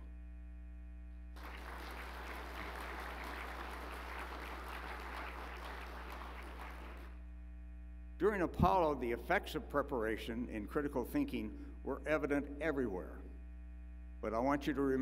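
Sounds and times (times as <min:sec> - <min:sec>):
electrical hum: 0:00.0 - 0:15.0
audience applauding: 0:01.4 - 0:07.2.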